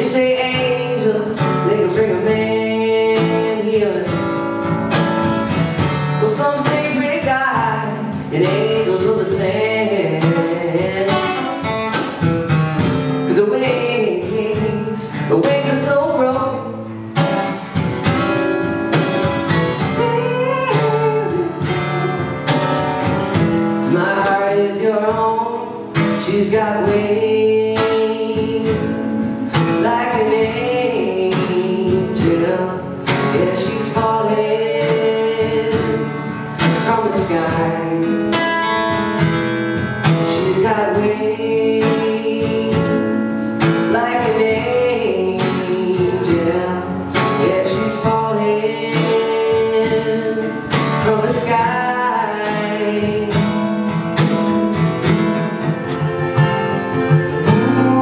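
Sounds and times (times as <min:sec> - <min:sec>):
acoustic guitars playing: 0:00.0 - 0:58.0
cajon beats: 0:00.0 - 0:58.0
sliding melody line: 0:54.4 - 0:58.0.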